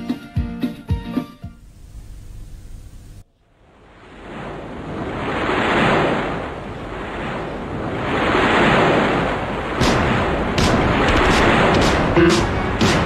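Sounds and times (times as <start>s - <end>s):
rushing noise: 3.6s - 13.0s
sharp knock: 9.8s - 13.0s.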